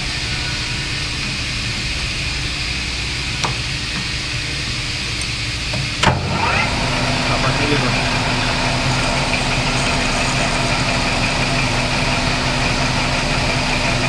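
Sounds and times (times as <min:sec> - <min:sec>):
metal lathe drilling brass: 0:06.2 - 0:14.0.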